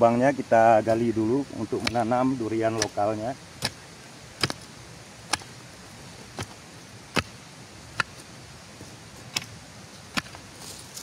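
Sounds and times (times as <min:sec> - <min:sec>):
hoe chopping into earth: 0:01.8 - 0:03.8, 0:04.4 - 0:05.6, 0:06.3 - 0:08.2, 0:09.3 - 0:10.4.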